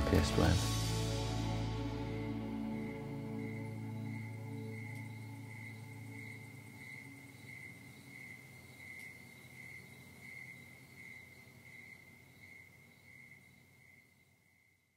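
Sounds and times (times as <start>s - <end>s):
closing music: 0.0s - 7.4s
low drone: 0.0s - 8.1s
pulsing high-pitched tone: 0.7s - 7.4s.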